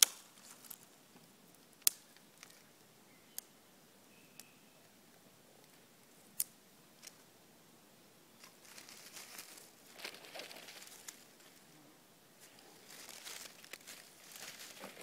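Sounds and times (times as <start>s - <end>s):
twigs snapping: 0.0s - 0.8s, 1.5s - 2.7s, 8.4s - 11.6s, 12.4s - 15.0s
crackling rustle of twigs: 0.0s - 3.6s, 4.4s - 7.3s, 8.3s - 15.0s.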